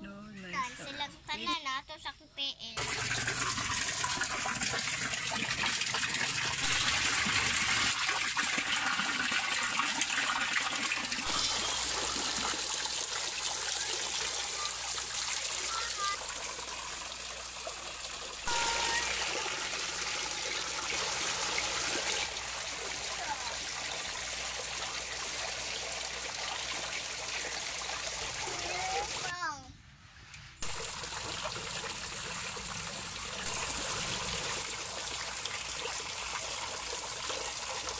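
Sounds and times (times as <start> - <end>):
water trickling and splashing: 2.8 - 29.4, 30.6 - 37.9.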